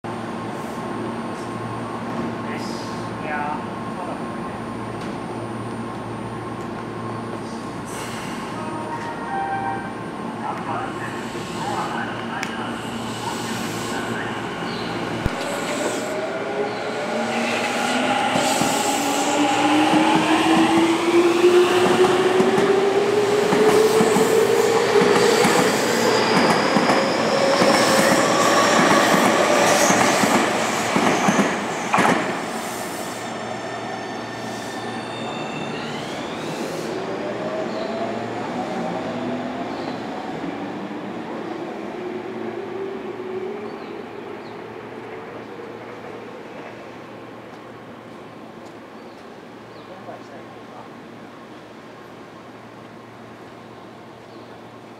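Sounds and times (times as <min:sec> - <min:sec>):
train wheels on rails: 0:15.0 - 0:33.2.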